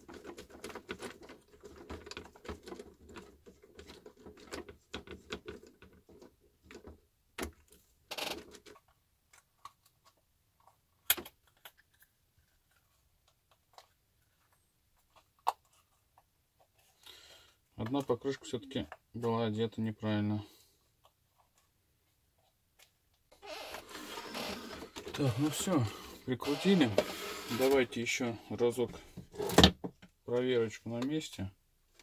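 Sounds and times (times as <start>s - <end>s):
plastic clicks and clatter: 0.0s - 17.1s.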